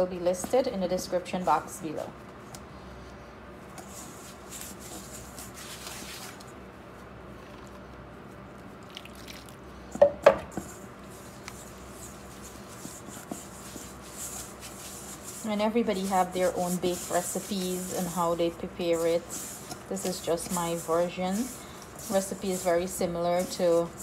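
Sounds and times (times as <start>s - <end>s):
hands squishing dough: 10.4s - 24.0s.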